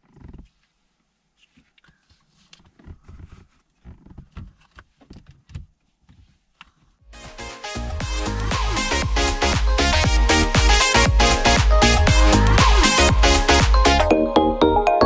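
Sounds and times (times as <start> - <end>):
loud electronic music: 7.1 - 15.0.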